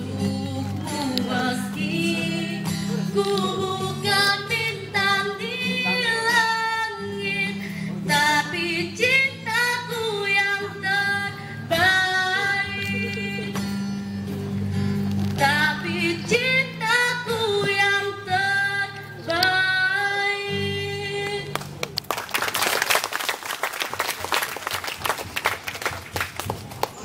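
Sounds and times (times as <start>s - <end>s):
woman singing pop song: 0.0s - 13.9s, 15.4s - 21.6s.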